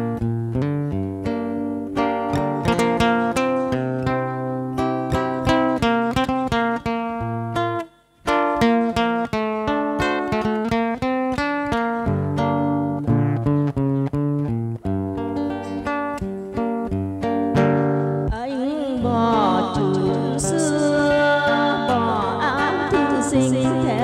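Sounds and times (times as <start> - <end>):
acoustic guitar playing: 0.0 - 24.0
woman singing with vibrato: 18.3 - 24.0.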